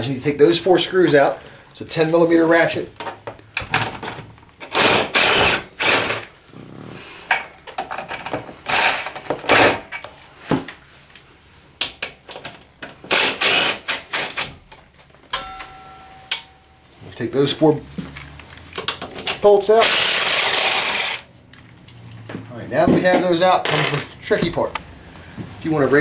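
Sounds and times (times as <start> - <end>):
cordless drill spinning: 19.8 - 21.2.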